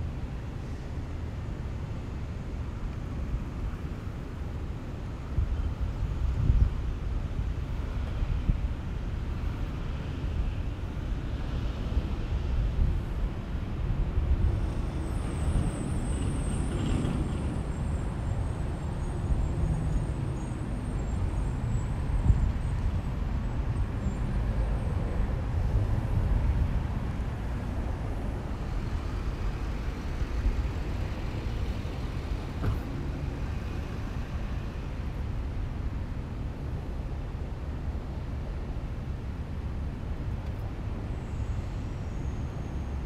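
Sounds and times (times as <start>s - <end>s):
road traffic rumble: 0.0s - 43.0s.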